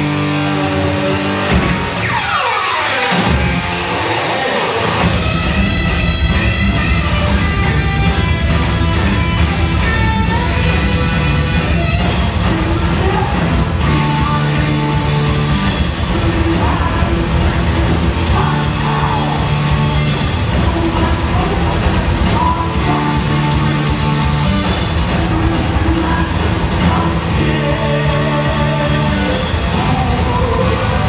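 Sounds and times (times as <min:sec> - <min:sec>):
bass guitar: 0:00.0 - 0:31.0
distorted electric guitar: 0:00.0 - 0:31.0
drum kit: 0:00.0 - 0:31.0.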